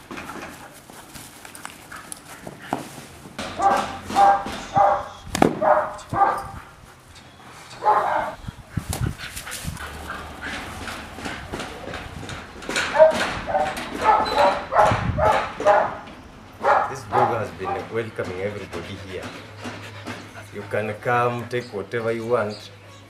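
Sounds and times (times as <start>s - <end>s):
dog barking aggressively: 3.6s - 6.6s, 7.8s - 8.4s, 12.8s - 18.0s.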